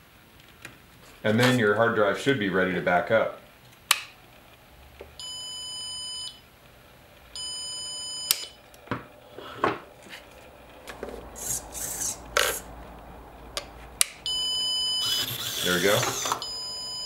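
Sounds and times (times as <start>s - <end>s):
backup buzzer beeping: 5.2s - 6.4s, 7.4s - 8.6s, 14.2s - 17.0s.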